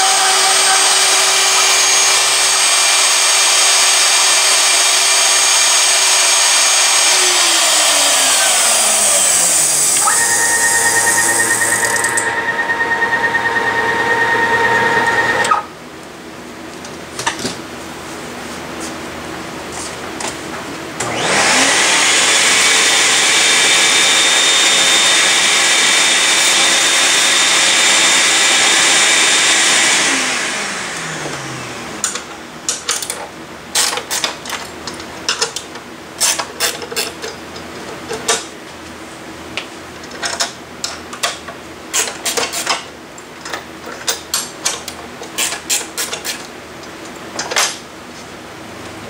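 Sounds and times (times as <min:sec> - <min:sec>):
electric motor whine: 0:00.0 - 0:15.6, 0:21.0 - 0:32.0
clamps clicking and knocking: 0:40.1 - 0:47.8.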